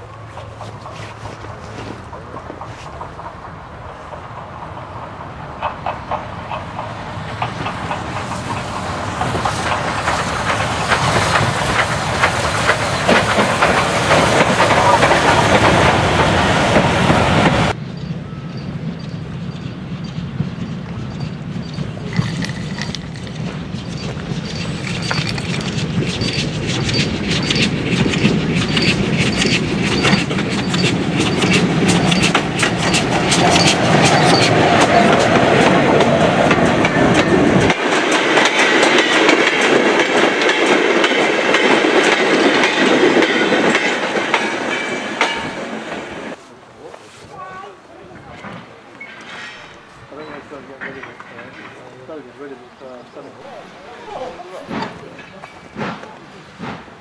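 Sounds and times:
train wheels clicking over rail joints: 0:00.0 - 0:17.8, 0:18.8 - 0:46.4, 0:47.5 - 0:53.3, 0:54.2 - 0:57.0
steam locomotive passing: 0:00.0 - 0:57.0.

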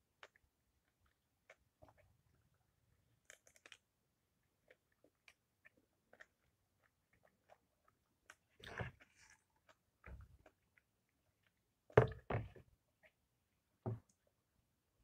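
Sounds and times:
wet chewing clicks: 0:00.2 - 0:02.1, 0:04.6 - 0:10.9
fruit handling knocks and thumps: 0:12.0 - 0:12.6, 0:13.8 - 0:14.1.

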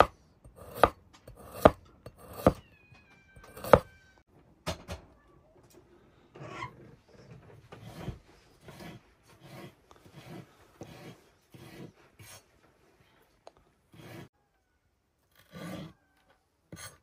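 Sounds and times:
rough scraping strokes: 0:07.7 - 0:12.6, 0:13.9 - 0:14.3.

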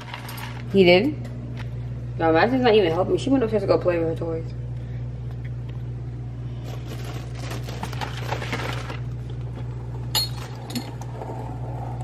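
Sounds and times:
steady low hum: 0:00.0 - 0:12.0
glass clinking: 0:10.1 - 0:11.0.

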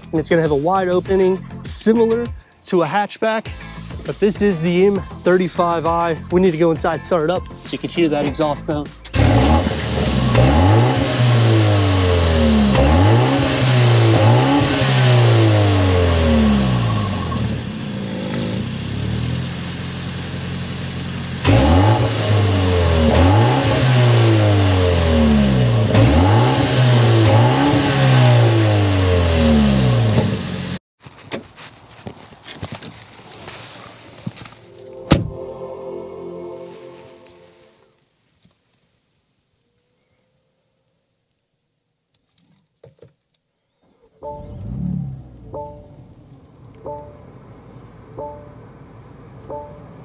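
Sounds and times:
car engine idling: 0:09.1 - 0:30.8, 0:44.4 - 0:50.0
car engine revving: 0:09.1 - 0:30.8, 0:44.4 - 0:49.5.

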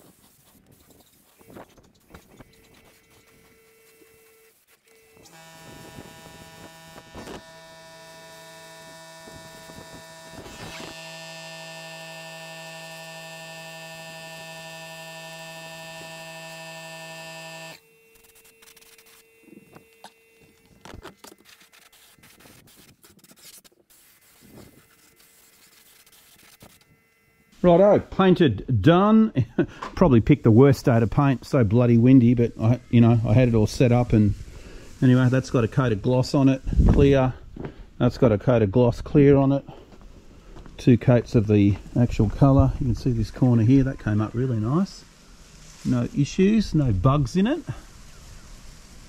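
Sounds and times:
air compressor motor running: 0:00.0 - 0:22.8.

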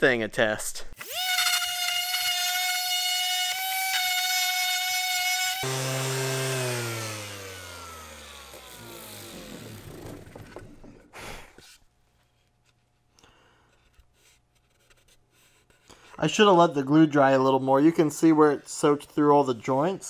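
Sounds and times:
orbital sander spinning down: 0:01.0 - 0:10.6.

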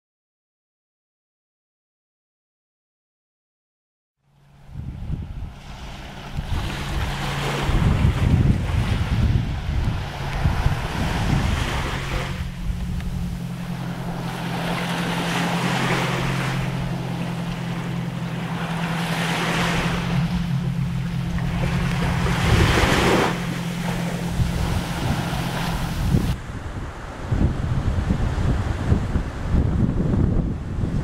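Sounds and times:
steady low hum: 0:04.2 - 0:28.6
wind buffeting microphone: 0:04.5 - 0:31.0
surf washing on rocks: 0:05.6 - 0:31.0.

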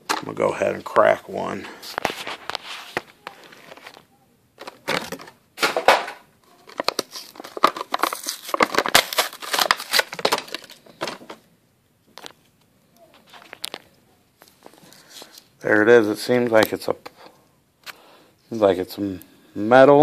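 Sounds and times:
plastic blister pack tearing: 0:06.5 - 0:11.2.

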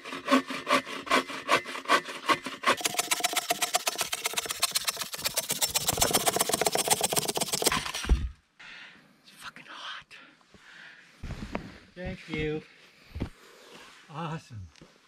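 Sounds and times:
saw cutting through log: 0:00.0 - 0:08.0.

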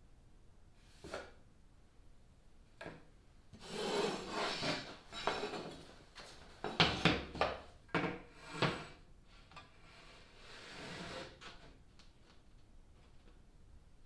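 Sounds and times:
tools scraping across wood: 0:03.5 - 0:07.2, 0:08.0 - 0:11.8.

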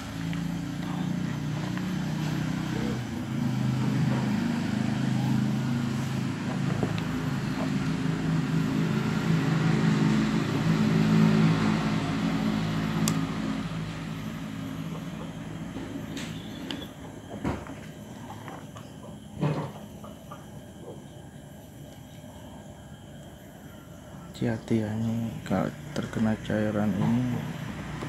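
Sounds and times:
engine humming: 0:00.0 - 0:21.2.

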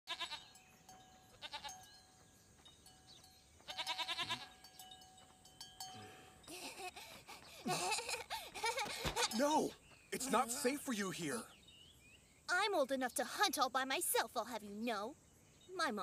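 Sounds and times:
goats bleating: 0:00.1 - 0:00.5, 0:01.4 - 0:01.8, 0:03.7 - 0:04.6, 0:10.2 - 0:10.9.

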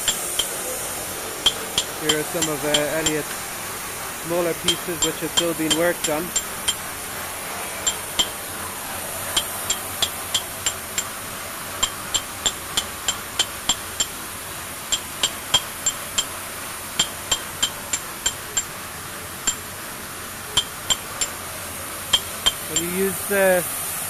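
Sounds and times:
background hiss: 0:00.0 - 0:24.0
hammer striking chisel on stone: 0:01.4 - 0:03.4, 0:04.6 - 0:06.8, 0:07.8 - 0:08.4, 0:09.4 - 0:11.2, 0:11.8 - 0:14.2, 0:14.9 - 0:16.4, 0:17.0 - 0:18.7, 0:19.5 - 0:19.7, 0:20.6 - 0:21.4, 0:22.1 - 0:23.0.

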